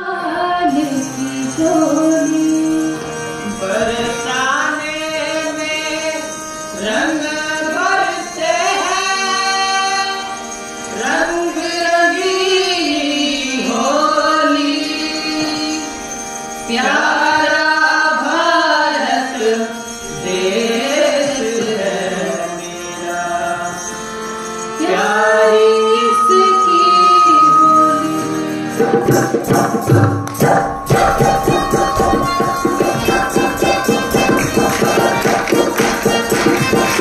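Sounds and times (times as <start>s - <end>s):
person singing folk song: 0.0s - 16.0s, 16.7s - 23.8s
fast folk percussion: 28.0s - 37.0s.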